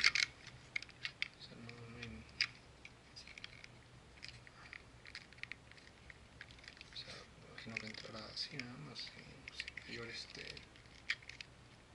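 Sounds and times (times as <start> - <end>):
plastic parts clicking: 0.0 - 2.6, 3.2 - 7.0, 7.6 - 8.8, 9.4 - 11.5.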